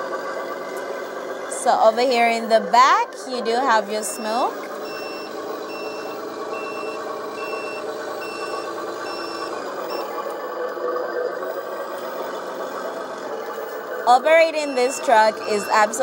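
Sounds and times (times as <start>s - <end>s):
simulated truck engine running: 0.0s - 16.0s
reversing beeper beeping: 3.9s - 10.2s, 13.5s - 16.0s.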